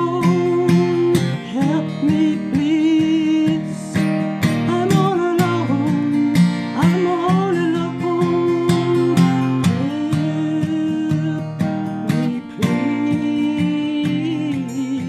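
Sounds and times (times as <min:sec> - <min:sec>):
acoustic guitar strumming: 0:00.0 - 0:15.0.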